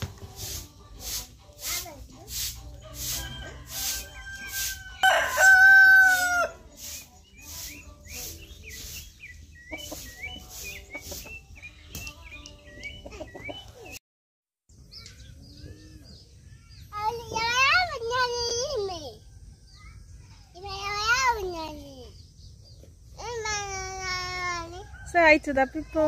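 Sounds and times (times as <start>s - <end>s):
regular swishing strokes: 0.2s - 4.8s, 6.7s - 9.2s
rooster crowing: 3.0s - 6.6s
short bird chirps: 6.9s - 13.7s.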